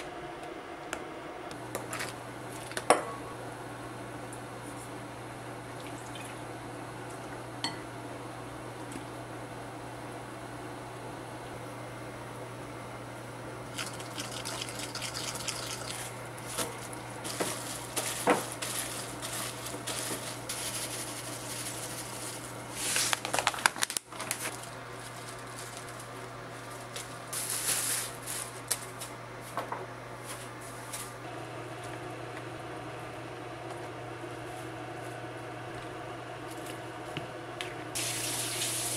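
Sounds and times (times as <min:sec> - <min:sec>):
steady low hum: 0:24.1 - 0:38.0.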